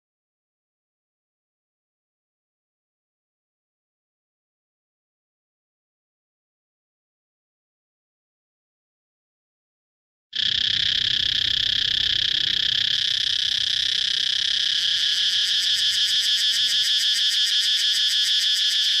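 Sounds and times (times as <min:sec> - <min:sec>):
cicadas buzzing: 0:10.4 - 0:19.0.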